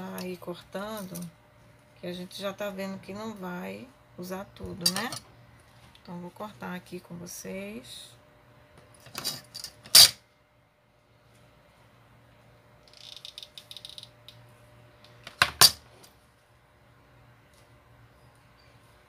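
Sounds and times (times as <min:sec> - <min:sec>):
tools rattling: 0:09.1 - 0:10.2.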